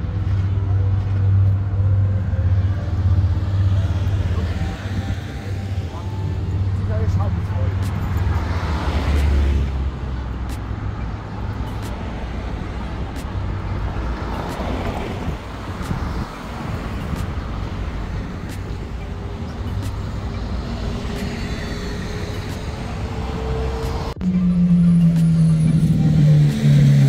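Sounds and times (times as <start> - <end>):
motor vehicle engine hum: 0.0 - 27.0.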